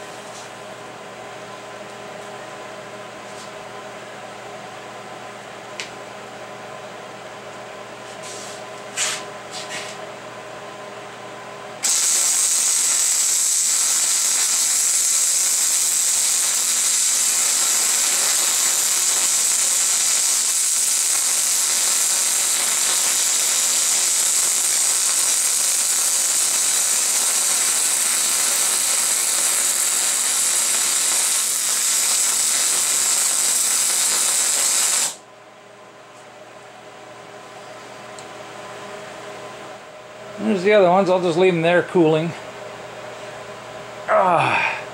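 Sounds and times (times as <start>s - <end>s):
welding arc sizzling hiss: 11.8s - 35.2s.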